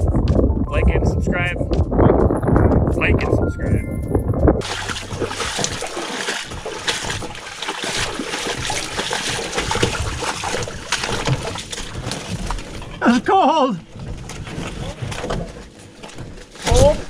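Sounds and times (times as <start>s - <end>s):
footsteps squelching through mud: 4.6s - 13.0s.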